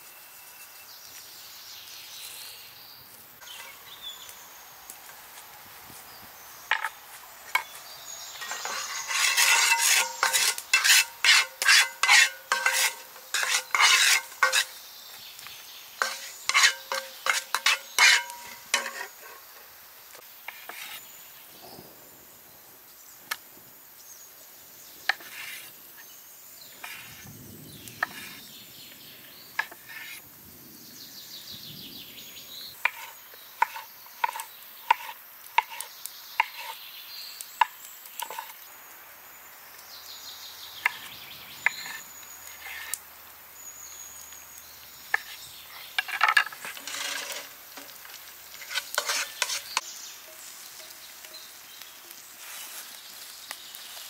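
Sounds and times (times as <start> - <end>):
pan being stirred with clatter: 8.4 - 14.8, 16.0 - 19.4, 46.0 - 51.6.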